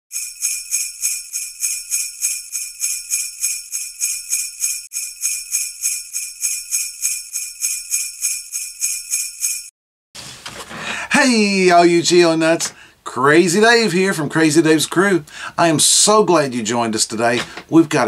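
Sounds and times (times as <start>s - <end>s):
sleigh bells jingling: 0.1s - 9.7s.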